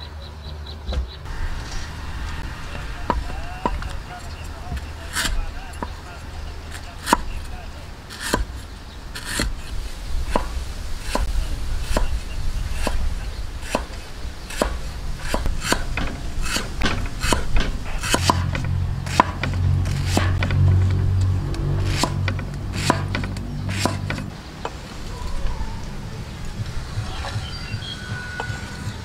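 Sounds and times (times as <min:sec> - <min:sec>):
low steady hum: 0:00.0 - 0:29.0
cleaver chopping on wood: 0:02.3 - 0:06.1, 0:06.7 - 0:07.5, 0:08.1 - 0:08.6, 0:09.2 - 0:09.7, 0:10.3 - 0:12.2, 0:12.8 - 0:24.3.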